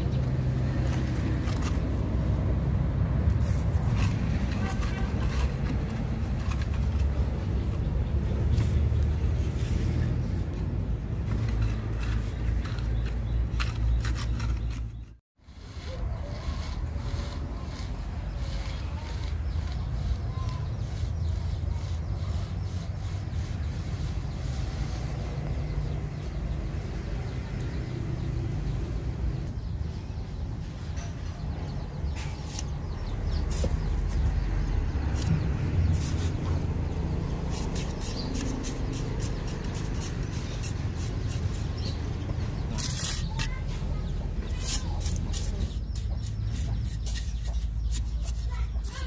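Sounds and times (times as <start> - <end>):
metal strip scraping wet cement: 3.4 - 7.2, 11.3 - 23.7, 35.1 - 42.0, 42.6 - 43.8, 44.4 - 49.0.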